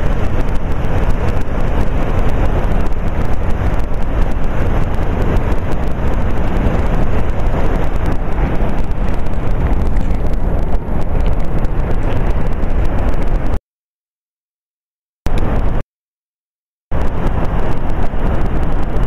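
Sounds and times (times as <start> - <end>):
waterfall roaring: 0.0 - 13.6
wind buffeting microphone: 0.0 - 13.6, 15.3 - 15.8, 16.9 - 19.0.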